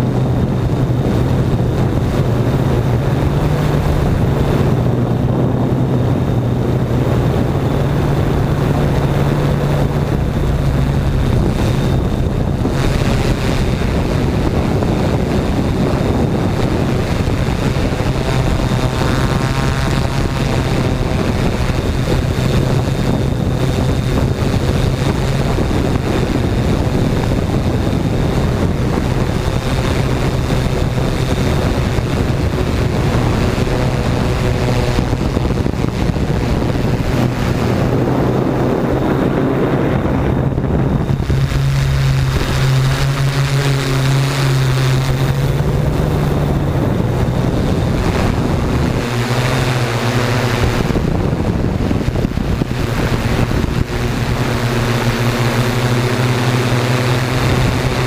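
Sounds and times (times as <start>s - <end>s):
drone motors humming: 0.0s - 58.0s
wind buffeting microphone: 0.0s - 58.0s.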